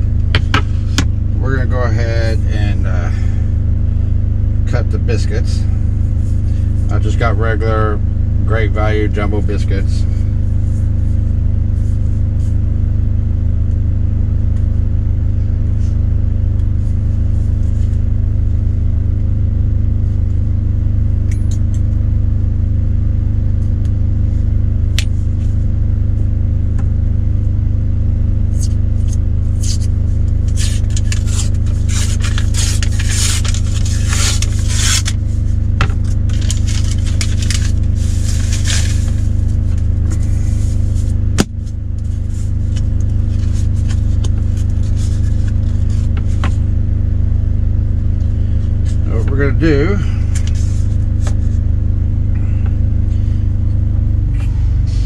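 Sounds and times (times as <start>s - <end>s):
diesel engine idling: 0.0s - 55.0s
cardboard tube being peeled: 28.6s - 35.2s, 36.0s - 46.5s.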